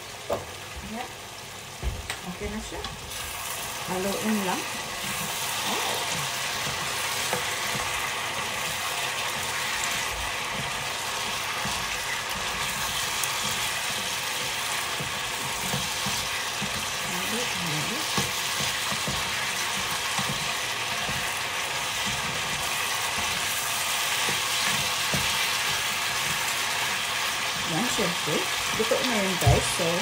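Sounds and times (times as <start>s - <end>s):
food sizzling in a frying pan: 0.0s - 30.0s
spatula scraping and clicking on pan: 6.1s - 17.0s, 18.1s - 26.6s.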